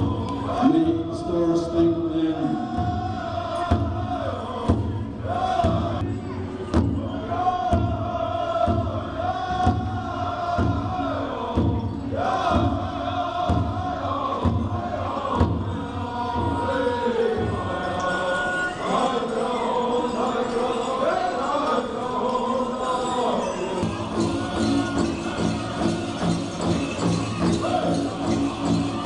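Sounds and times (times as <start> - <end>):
group singing a chant: 0.0 - 29.0
large drum beating: 2.6 - 6.1.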